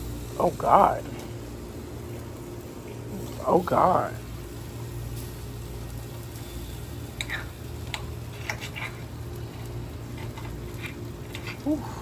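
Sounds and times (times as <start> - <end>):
steady low hum: 0.0 - 12.0
fat popping and crackling: 7.1 - 11.9.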